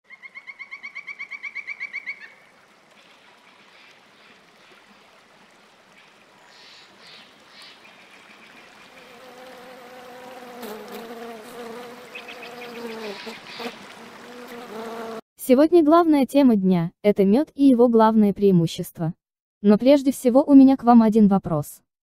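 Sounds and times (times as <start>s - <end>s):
shallow stream rushing: 2.4s - 9.8s, 13.3s - 14.5s
honeybees buzzing: 8.8s - 15.2s.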